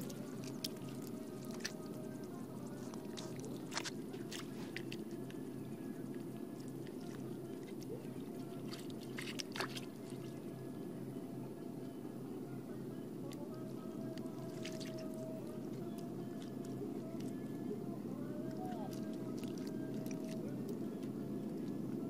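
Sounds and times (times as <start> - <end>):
wet mud squelching: 0.0 - 2.0, 2.7 - 5.3, 6.6 - 10.4, 14.1 - 15.2, 18.7 - 20.4.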